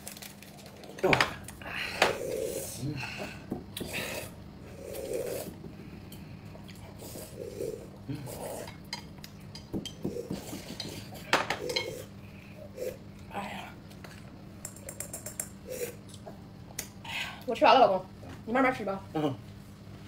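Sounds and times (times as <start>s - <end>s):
utensils clicking on dishes: 14.6s - 15.6s.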